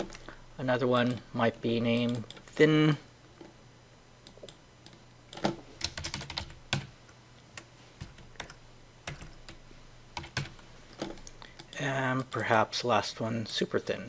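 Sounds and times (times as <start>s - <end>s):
computer keyboard typing: 4.3s - 6.9s, 7.6s - 9.6s, 10.2s - 12.4s.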